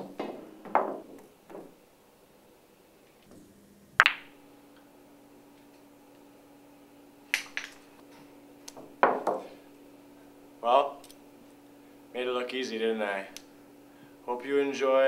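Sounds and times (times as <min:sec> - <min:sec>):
pool balls clicking: 0:00.0 - 0:01.8, 0:04.0 - 0:04.4, 0:07.3 - 0:09.6.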